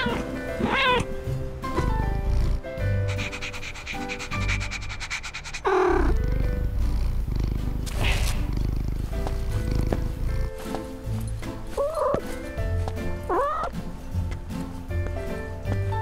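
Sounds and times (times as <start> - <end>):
cat falling call: 0.0 - 1.1
light background music: 0.0 - 16.0
cartoon cat purring: 1.8 - 10.6.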